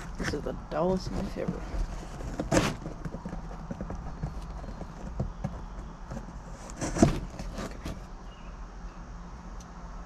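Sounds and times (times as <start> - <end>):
cardboard tearing rasp: 1.1 - 8.1
knife scraping tape: 1.4 - 8.1.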